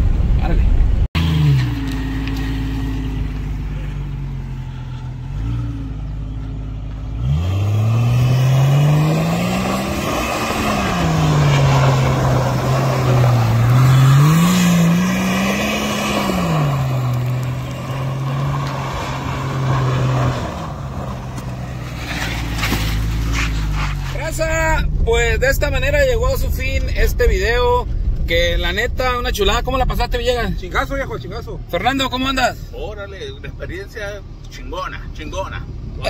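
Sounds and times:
car engine revving: 0:00.1 - 0:33.6
tyres throwing dirt: 0:06.9 - 0:24.8.

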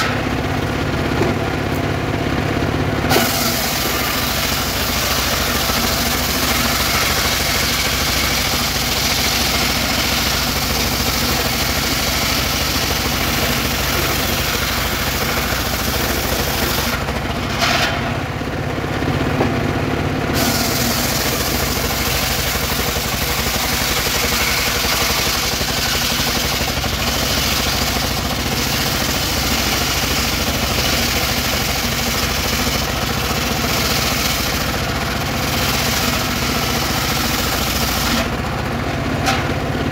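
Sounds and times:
saw blade cutting wood: 0:00.0 - 0:00.3, 0:03.1 - 0:18.2, 0:20.4 - 0:38.5
sawmill engine running: 0:00.0 - 0:39.9.

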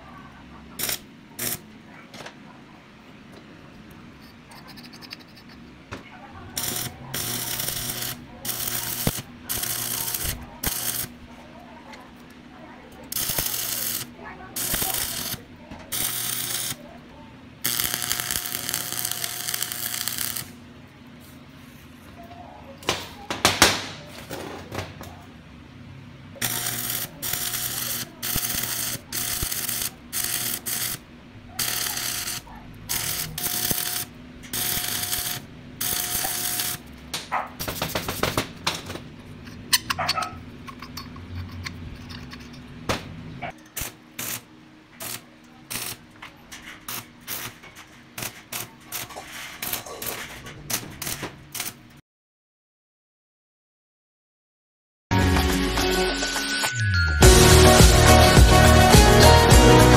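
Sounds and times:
welding machine tone: 0:00.7 - 0:01.7, 0:06.4 - 0:12.3, 0:12.9 - 0:20.7, 0:26.3 - 0:38.7, 0:43.6 - 0:52.0
welding arc crackling and hissing: 0:00.8 - 0:01.7, 0:06.5 - 0:11.3, 0:12.9 - 0:17.0, 0:17.6 - 0:20.6, 0:26.4 - 0:39.0, 0:43.6 - 0:46.1, 0:46.7 - 0:51.9.

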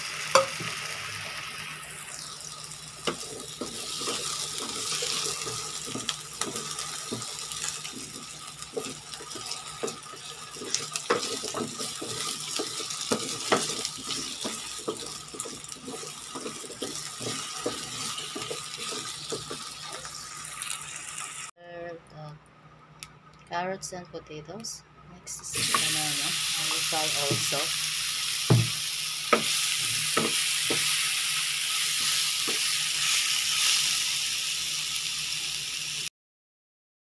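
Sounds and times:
vegetables sizzling in oil: 0:00.0 - 0:21.5, 0:25.5 - 0:36.1
wooden spatula scraping a pan: 0:03.1 - 0:20.1.

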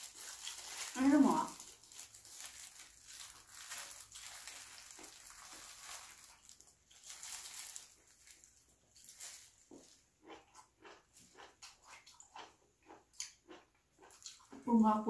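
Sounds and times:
plastic glove crinkling: 0:00.0 - 0:10.1.

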